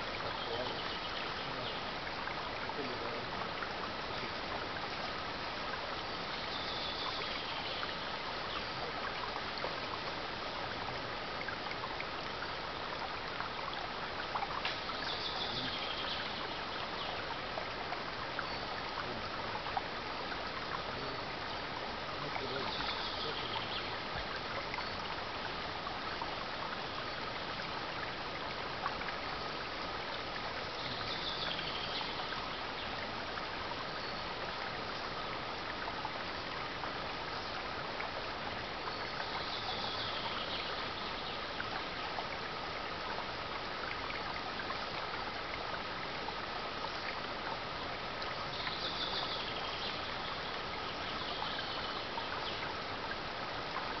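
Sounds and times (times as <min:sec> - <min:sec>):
stream rushing over rocks: 0:00.0 - 0:54.0.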